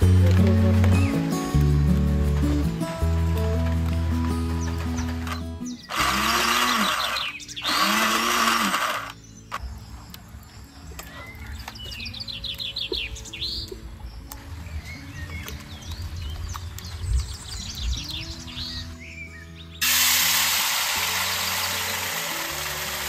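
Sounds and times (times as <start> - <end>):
small birds chirping: 0.0 - 19.8
soft background music: 0.0 - 23.0
rushing water noise: 19.8 - 23.0.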